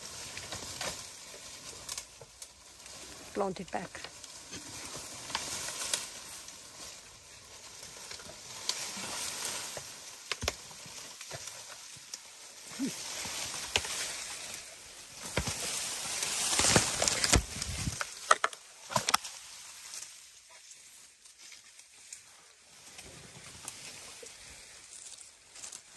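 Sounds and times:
leaves and branches rustling: 0.0s - 25.9s
twigs snapping: 0.1s - 3.2s, 4.0s - 20.2s
sharp wood cracks: 7.8s - 12.3s, 13.1s - 19.5s.

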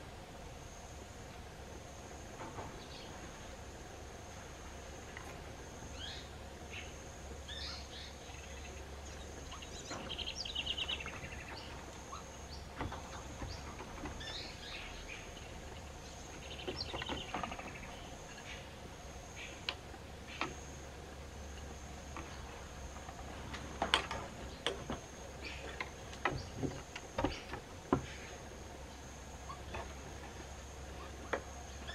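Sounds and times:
chirping trills: 5.8s - 20.6s
sharp clicks and knocks: 23.0s - 28.1s.

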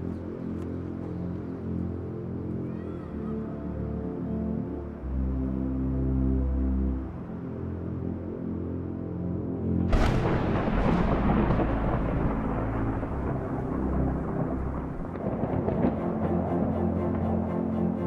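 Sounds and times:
low sustained music score: 0.0s - 18.0s
thunder cracking and rumbling: 9.9s - 17.4s.

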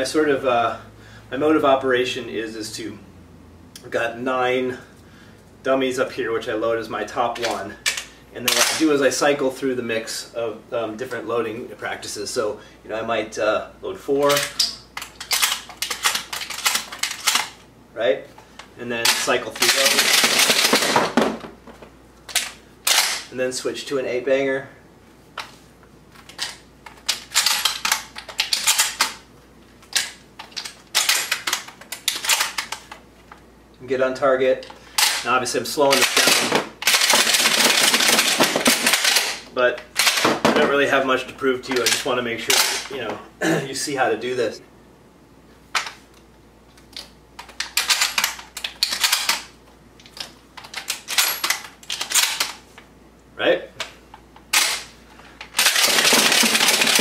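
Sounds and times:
shells clicking into shotgun magazine: 14.4s - 17.5s.

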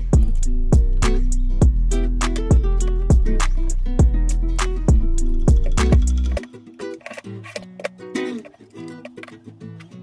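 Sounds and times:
music with strong beat: 0.0s - 6.6s.

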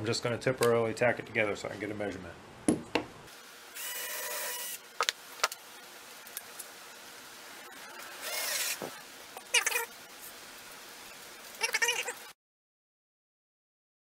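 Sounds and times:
cordless drill running: 3.8s - 4.8s, 8.1s - 8.8s.

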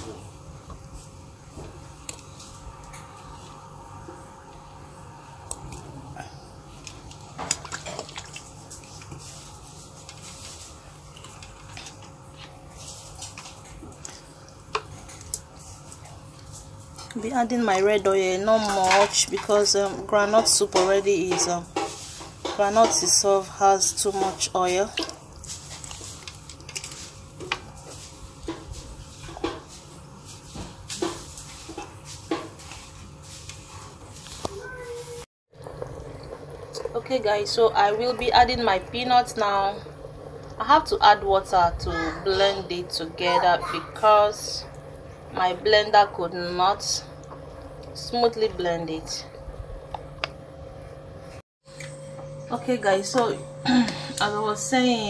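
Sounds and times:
stock boiling in metal pot: 6.8s - 34.9s, 35.5s - 51.1s.

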